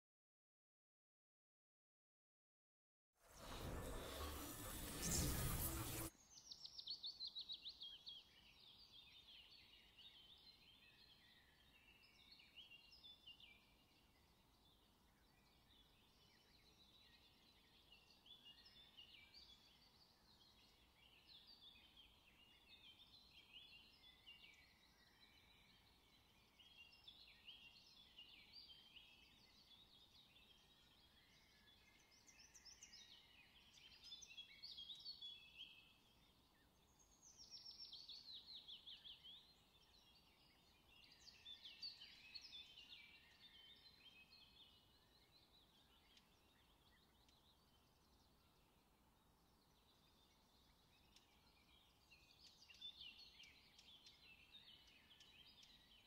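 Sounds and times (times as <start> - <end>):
loud burst of sound: 3.3 - 6.1
small birds chirping: 3.4 - 56.0.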